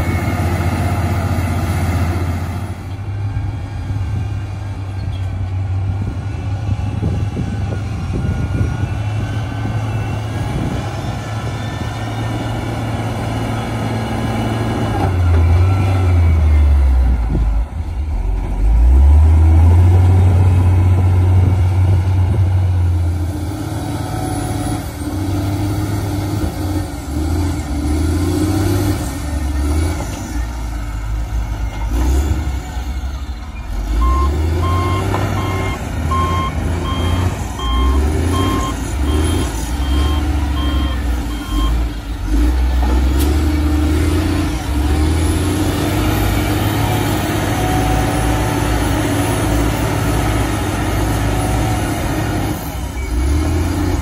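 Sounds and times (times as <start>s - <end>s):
heavy diesel engines under load: 0.0s - 54.0s
reversing alarm beeping: 32.6s - 42.0s.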